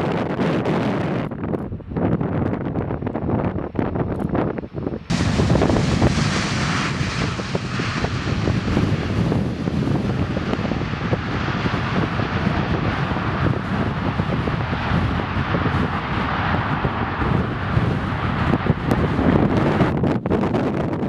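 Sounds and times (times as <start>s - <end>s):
jet engine noise: 0.0s - 21.0s
wind buffeting microphone: 0.0s - 21.0s.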